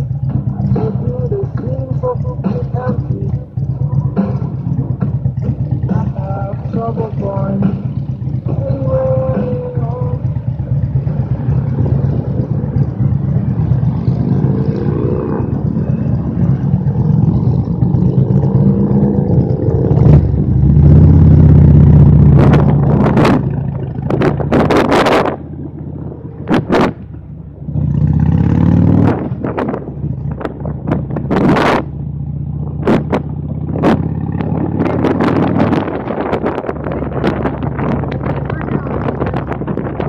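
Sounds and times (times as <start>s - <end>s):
motorcycle engine accelerating: 0.0s - 40.0s
wind gusts on microphone: 22.1s - 31.9s, 32.7s - 40.0s.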